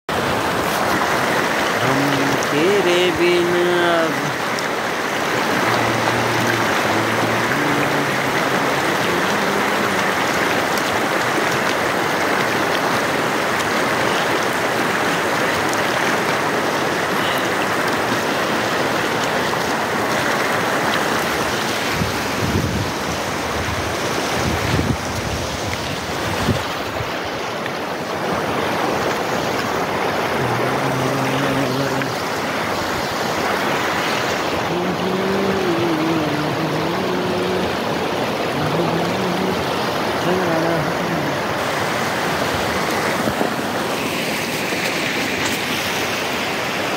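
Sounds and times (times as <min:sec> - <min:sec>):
river rushing over rocks: 0:00.1 - 0:46.9
wind gusts on microphone: 0:19.9 - 0:27.5.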